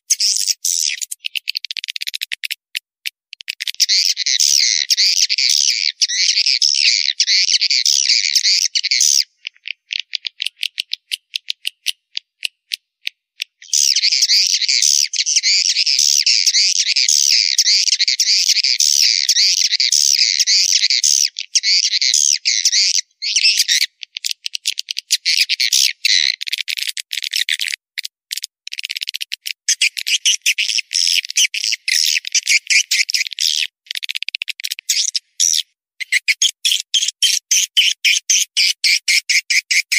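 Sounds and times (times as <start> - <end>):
sparse clicks: 1.0 - 3.8, 9.5 - 13.6, 26.4 - 29.6, 33.8 - 34.9.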